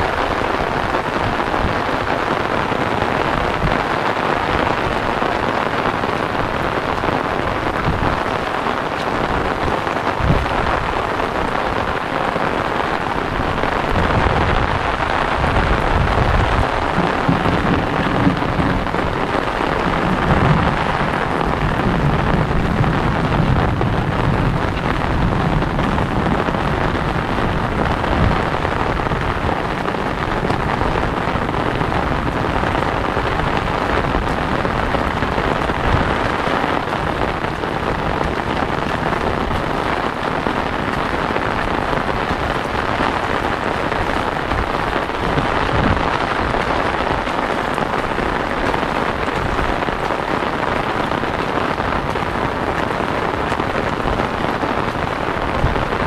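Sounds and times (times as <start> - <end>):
rain on an umbrella: 0.0 - 56.0
rain on waterlogged ground: 0.0 - 56.0
low rumble: 15.4 - 33.1.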